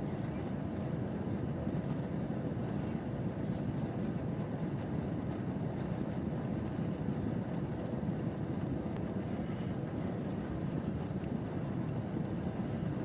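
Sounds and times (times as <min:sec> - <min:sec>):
low rumble and hum in train coach: 0:00.0 - 0:13.0.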